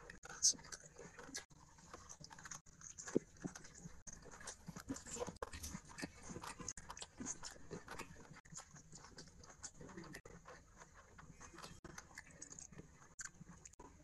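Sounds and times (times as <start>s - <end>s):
wet chewing and lip smacks: 0.0s - 14.0s.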